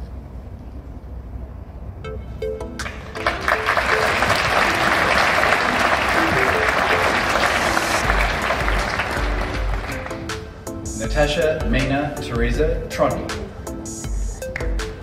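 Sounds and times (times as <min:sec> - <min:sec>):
soft background music: 0:01.2 - 0:15.0
audience applauding: 0:02.8 - 0:10.5.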